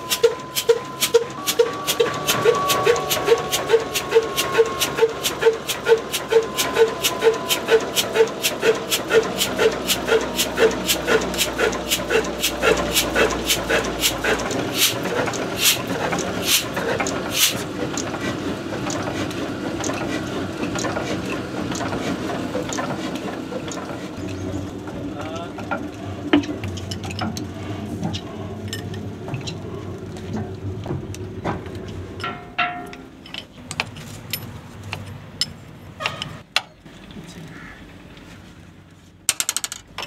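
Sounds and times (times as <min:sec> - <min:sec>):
spanner clinking on metal: 0:32.2 - 0:36.4.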